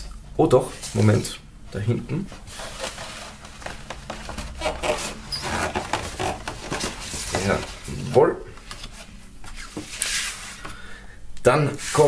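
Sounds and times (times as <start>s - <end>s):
paper and cardboard rustling: 2.3s - 10.6s.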